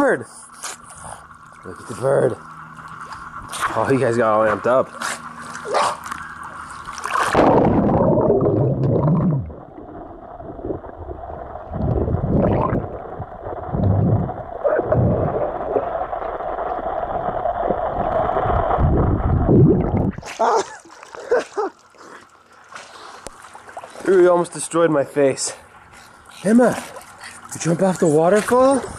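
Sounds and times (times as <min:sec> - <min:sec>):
steady underwater hum: 0:00.0 - 0:28.9
pool water splashing: 0:00.5 - 0:28.9
muffled underwater gurgling: 0:01.0 - 0:21.3
low thumps: 0:11.7 - 0:15.6.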